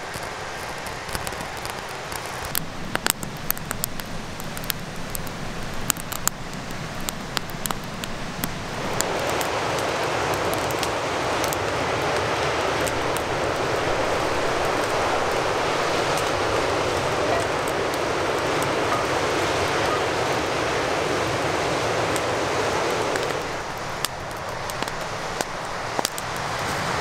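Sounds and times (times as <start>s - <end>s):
kindling crackling and popping: 0.0s - 27.0s
strong wind rushing: 8.6s - 24.0s.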